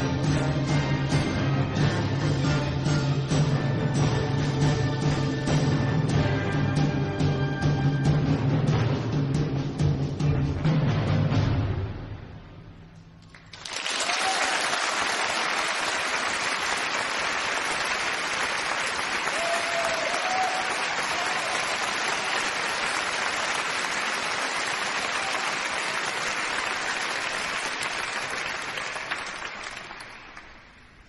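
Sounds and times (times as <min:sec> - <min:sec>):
audience applauding: 0:13.2 - 0:31.0.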